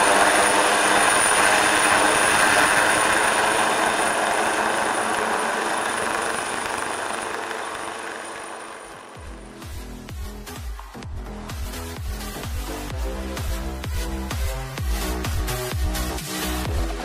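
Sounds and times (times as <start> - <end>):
helicopter engine whine: 0.0 - 10.7
helicopter rotor noise: 0.0 - 17.0.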